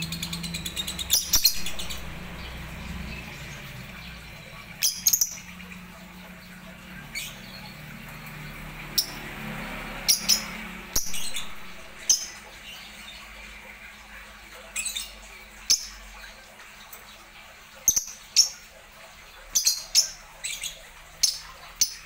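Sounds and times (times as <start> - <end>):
birds chirping and squawking: 0.0 - 22.0.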